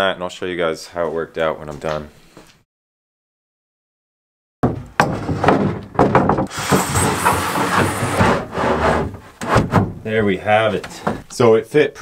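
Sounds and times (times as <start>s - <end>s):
plywood knocks and scrapes: 4.6s - 10.1s
hissing scraping of board cutting: 6.5s - 9.8s.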